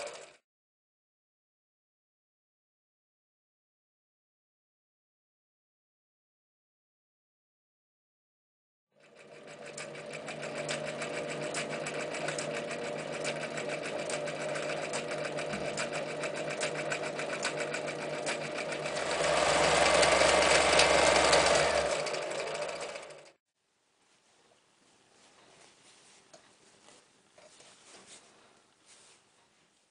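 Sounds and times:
sewing machine stitching: 0.0s - 0.4s, 9.0s - 23.4s.

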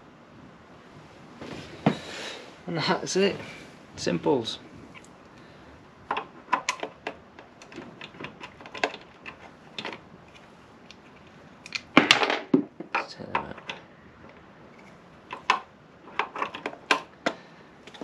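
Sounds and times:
clicking and rattling: 6.1s - 18.0s.

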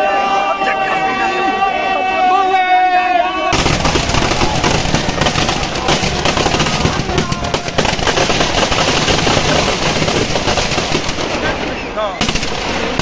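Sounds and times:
firecrackers string of bangs: 3.5s - 13.0s.

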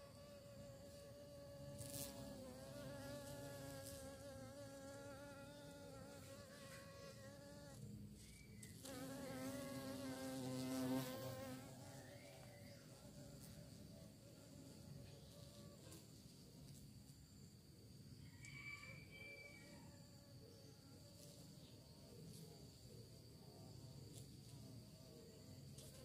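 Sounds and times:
bee buzzing in flight: 0.0s - 7.8s, 8.8s - 12.2s.

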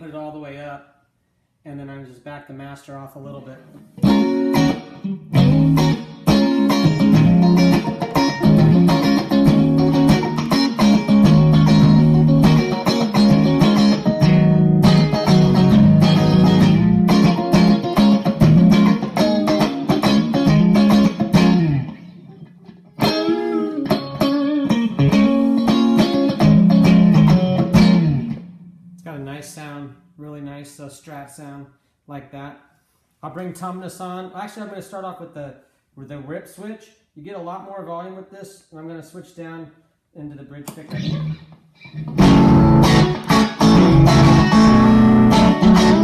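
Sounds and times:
distorted electric guitar: 4.0s - 29.0s, 40.9s - 46.0s.

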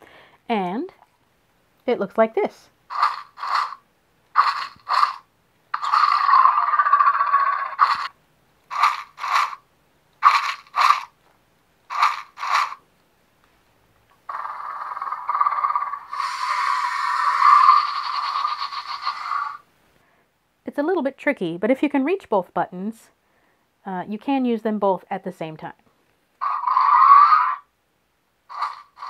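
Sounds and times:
electronic toy roar: 2.9s - 3.8s, 4.4s - 9.6s, 10.2s - 11.1s, 11.9s - 12.8s, 14.3s - 19.6s, 26.4s - 27.7s, 28.5s - 29.0s
toy mechanical rattles: 2.9s - 9.6s, 10.2s - 11.1s, 11.9s - 12.8s, 14.3s - 19.6s, 28.5s - 29.0s.

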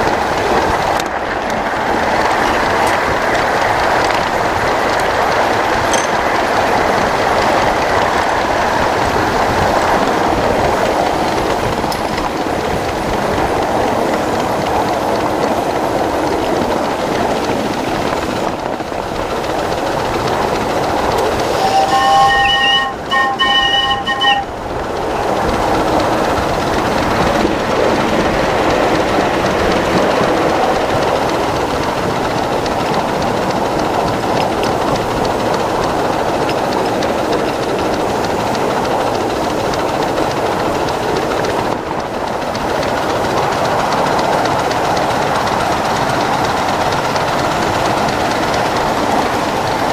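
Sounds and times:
miniature steam train running on rails: 0.0s - 49.9s
steam whistle blasts: 21.4s - 24.6s.

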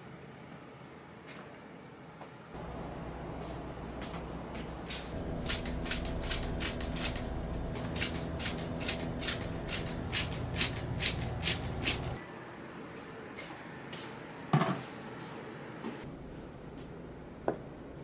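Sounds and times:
steady low hum: 2.6s - 12.2s
spray bottle hissing: 4.9s - 12.2s.

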